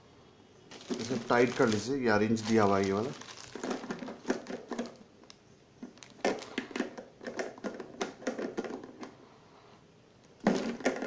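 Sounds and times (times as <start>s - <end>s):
plastic clicks and knocks: 3.6s - 9.1s, 10.4s - 11.0s.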